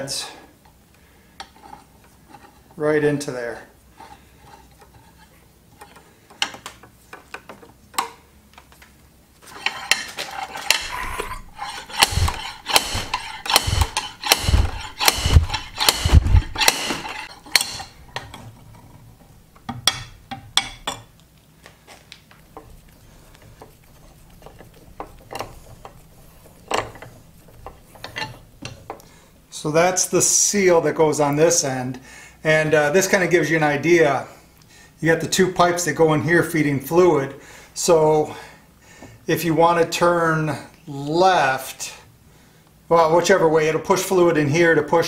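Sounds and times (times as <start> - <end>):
metal scraping and clanking: 9.4 - 20.9, 22.5 - 29.0
heavy slide hammer knocks: 10.6 - 18.3.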